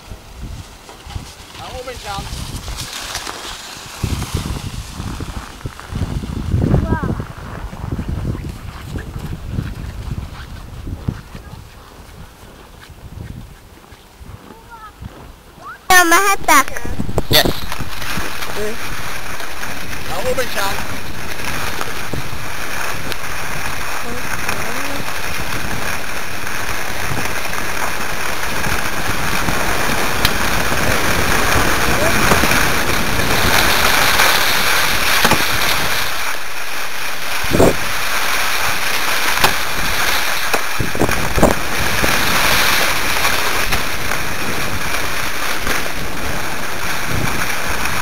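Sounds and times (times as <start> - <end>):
skis sliding over snow: 0.0 - 48.0
wind on microphone: 0.0 - 48.0.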